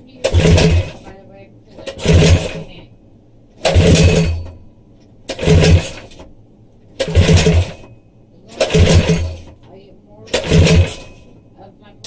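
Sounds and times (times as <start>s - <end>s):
small engine cranking and firing: 0.2s - 1.1s, 1.9s - 2.7s, 3.6s - 4.5s, 5.3s - 6.2s, 7.0s - 7.9s, 8.5s - 9.5s, 10.3s - 11.2s.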